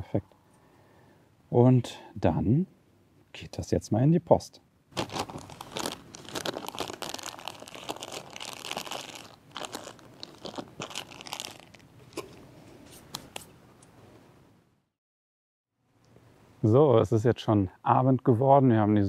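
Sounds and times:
plastic bag crinkling: 0:04.9 - 0:12.4.

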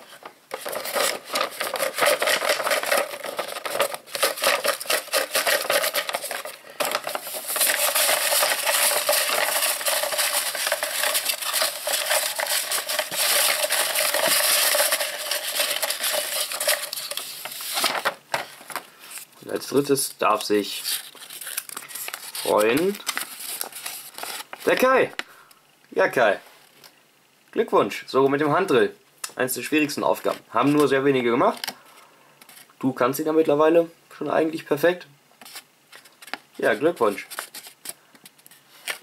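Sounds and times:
paper slips rustling in plastic bowl: 0:00.0 - 0:19.2, 0:20.4 - 0:24.9, 0:35.4 - 0:38.0.

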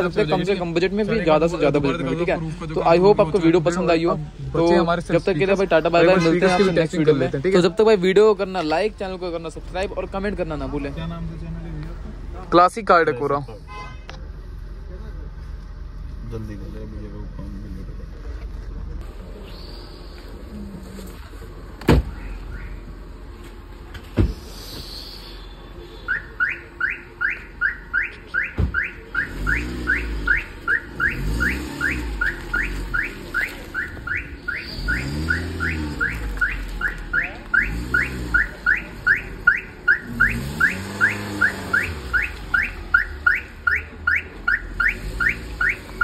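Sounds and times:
electronic alarm chirp: 0:25.0 - 0:45.9
car engine revving: 0:26.1 - 0:46.0.

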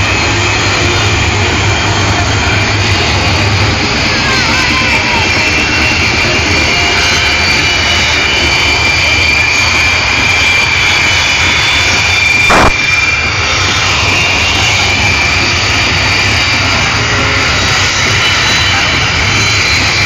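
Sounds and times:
jet engines running: 0:00.0 - 0:20.0
short sharp knock: 0:12.5 - 0:12.8.

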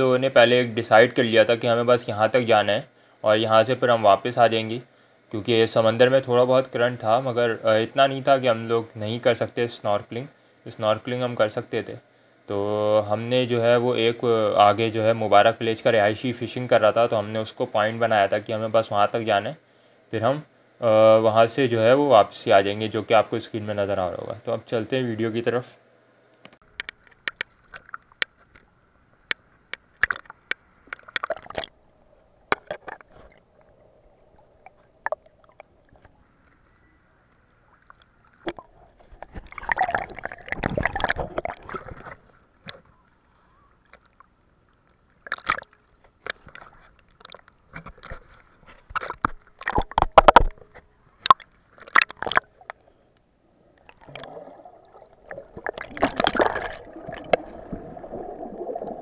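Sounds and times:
sea water sloshing and gurgling: 0:30.0 - 0:31.8, 0:37.7 - 0:42.9, 0:53.7 - 0:59.0
water splashes: 0:30.0 - 0:31.8, 0:37.6 - 0:42.8, 0:43.8 - 0:47.8, 0:51.2 - 0:52.8, 0:53.8 - 0:59.0
muffled underwater bubbling: 0:37.5 - 0:44.2, 0:53.8 - 0:59.0.

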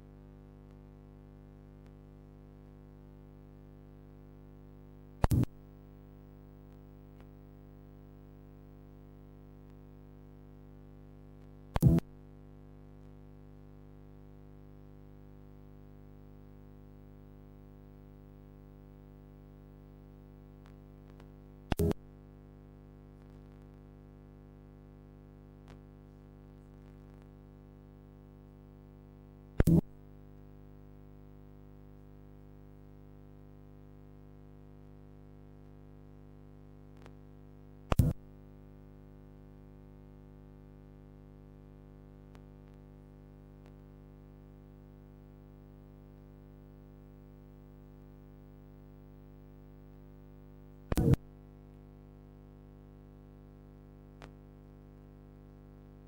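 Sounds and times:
loud sharp pops: 0:05.2 - 0:05.6, 0:11.8 - 0:12.1, 0:37.9 - 0:38.2, 0:50.9 - 0:51.2.

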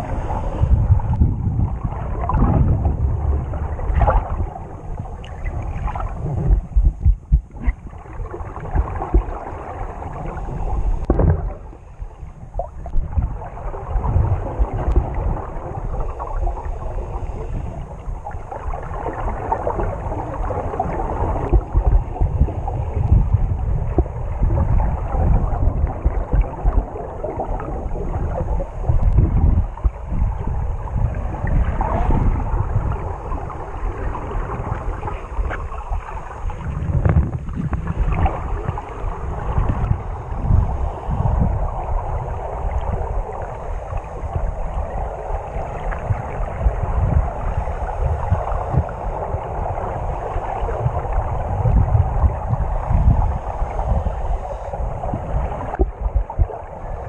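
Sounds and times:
underwater water churning: 0:00.0 - 0:57.0.

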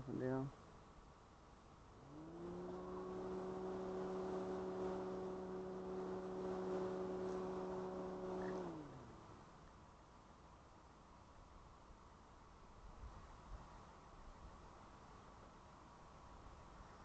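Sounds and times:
camera motor humming: 0:02.0 - 0:09.5.

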